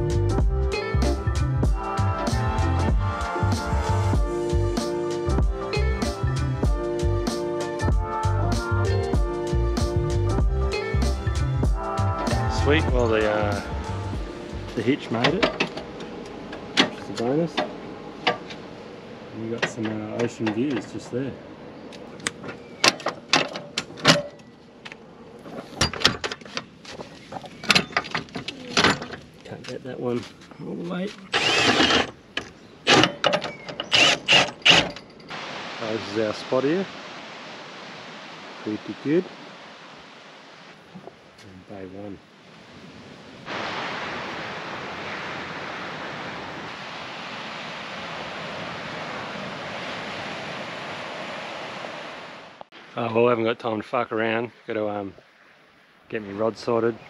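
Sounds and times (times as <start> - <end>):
ocean surf rushing: 10.8 - 23.3, 35.3 - 53.4
metal stabiliser leg clanking: 15.2 - 18.6, 22.2 - 24.5, 25.5 - 26.7, 31.6 - 35.3.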